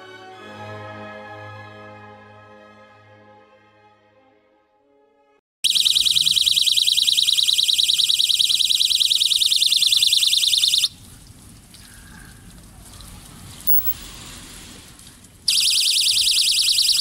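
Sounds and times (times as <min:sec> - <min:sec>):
high-pitched pulsing alarm buzz: 0:05.6 - 0:10.9, 0:15.5 - 0:17.0.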